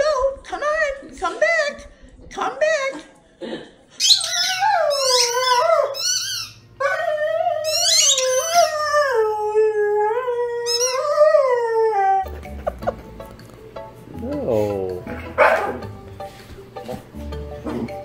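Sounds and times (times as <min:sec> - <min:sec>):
dog howling: 0:04.2 - 0:06.2, 0:06.8 - 0:12.4.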